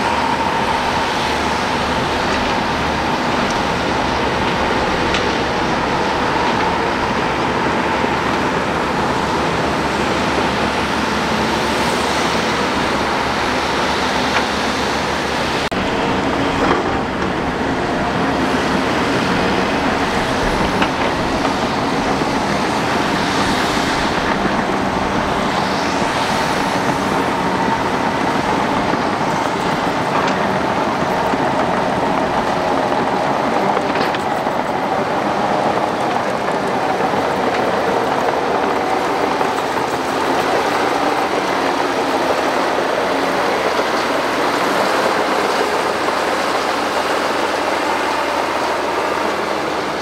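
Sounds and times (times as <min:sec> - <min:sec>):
bulldozer diesel engine under load: 0:00.0 - 0:50.0
steel tracks clattering: 0:00.0 - 0:50.0.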